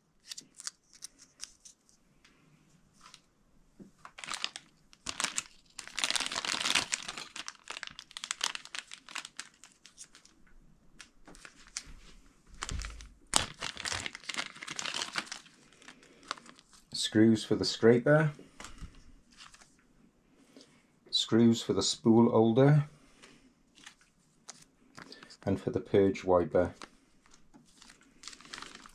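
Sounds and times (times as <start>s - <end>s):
plastic bags crinkling: 4.0s - 10.4s, 11.0s - 16.9s, 26.7s - 28.9s.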